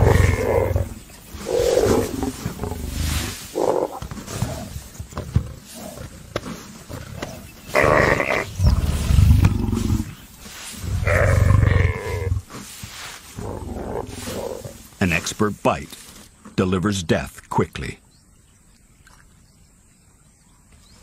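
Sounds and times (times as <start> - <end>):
lioness growling: 0.0 - 14.9.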